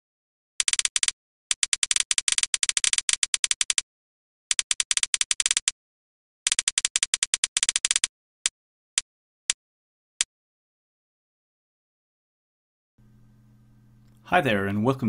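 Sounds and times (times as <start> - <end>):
typing on a keyboard: 0.6 - 3.8, 4.5 - 5.7, 6.5 - 8.1.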